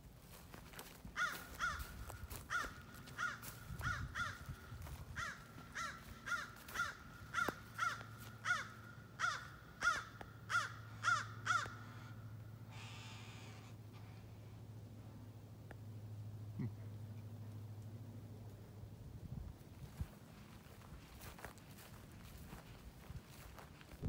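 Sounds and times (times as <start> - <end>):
crows cawing: 0.8 - 13.7.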